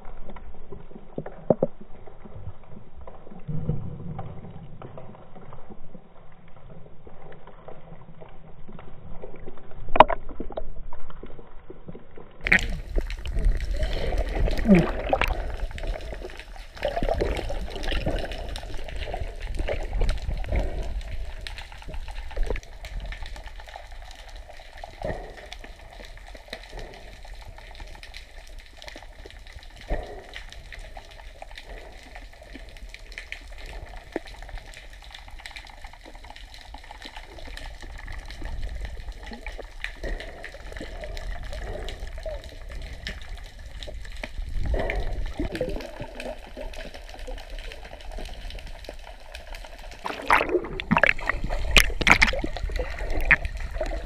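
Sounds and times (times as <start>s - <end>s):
underwater rumbling wash: 7.7s - 28.0s, 36.6s - 54.0s
swimmer knocks and swishes: 50.0s - 53.5s.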